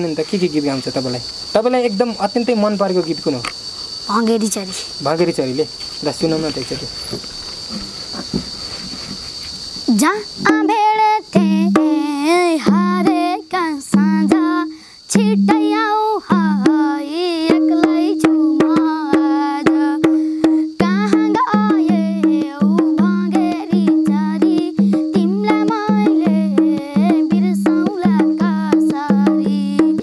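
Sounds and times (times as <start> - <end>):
hand drum rhythm: 7.7 - 30.0
boy singing: 9.9 - 30.0.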